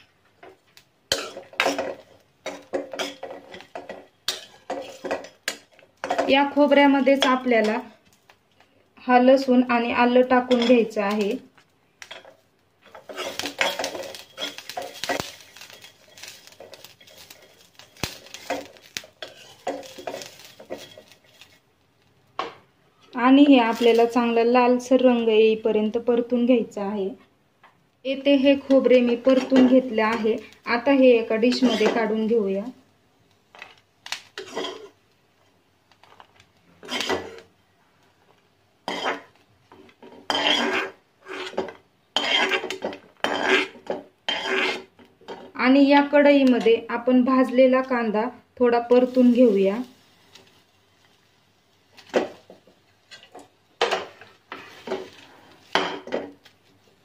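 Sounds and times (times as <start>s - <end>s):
food sizzling in oil: 0.0s - 8.3s, 9.1s - 22.5s, 23.2s - 27.1s, 28.1s - 37.7s, 38.6s - 57.0s
metal spatula scraping pan: 1.1s - 7.8s, 12.1s - 21.6s, 28.6s - 30.5s, 31.4s - 32.3s, 34.4s - 35.0s, 36.8s - 37.5s, 38.8s - 45.5s, 53.1s - 56.2s.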